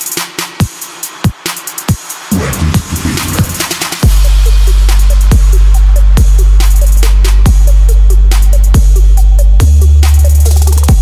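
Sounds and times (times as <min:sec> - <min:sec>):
booming kick drums: 0:02.3 - 0:06.7
heavy steady bass: 0:02.3 - 0:11.0.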